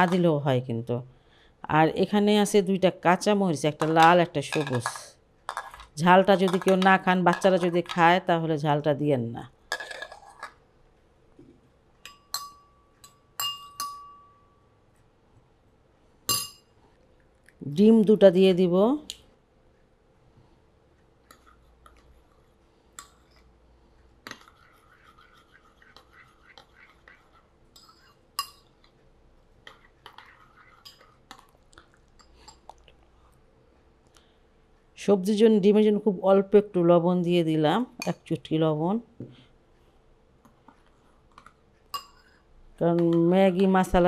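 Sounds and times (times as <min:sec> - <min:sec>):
spoon clinking against bowl: 0:12.0 - 0:14.5, 0:16.3 - 0:16.7, 0:41.9 - 0:42.3
wet stirring of eggs: 0:21.0 - 0:33.4, 0:40.4 - 0:42.5.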